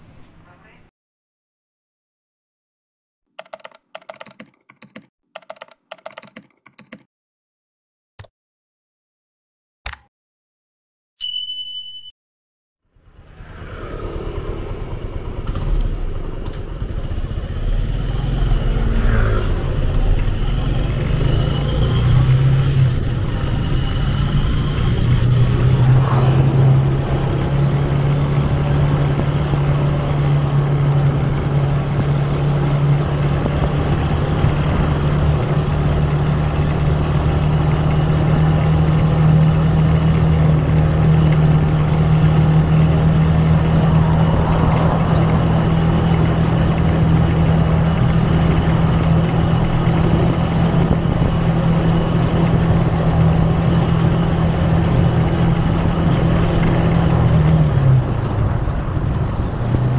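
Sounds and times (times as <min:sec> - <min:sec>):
motorcycle engine running: 0:13.8 - 0:25.6.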